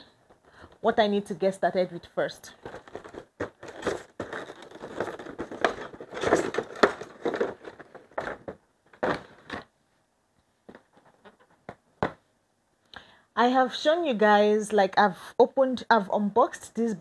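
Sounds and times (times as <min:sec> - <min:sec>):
plastic tray crackling and rustling: 0:02.5 - 0:09.7.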